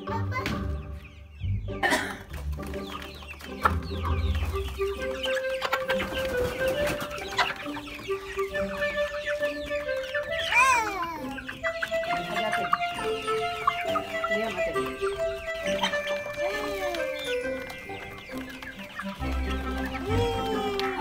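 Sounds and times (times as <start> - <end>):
hens clucking: 0.0 - 21.0
hen crying out: 10.4 - 11.4, 19.8 - 21.0.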